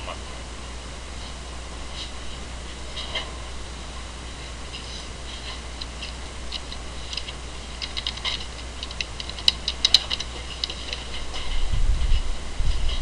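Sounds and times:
low electrical hum: 0.0s - 13.0s
computer keyboard and mouse clicking: 5.8s - 11.2s.

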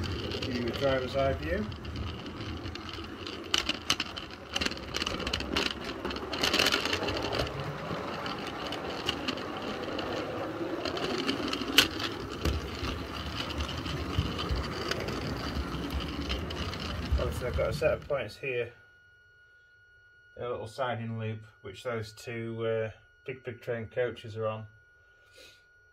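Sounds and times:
model train running: 0.0s - 18.2s
wheels clicking over rails: 0.0s - 18.2s.

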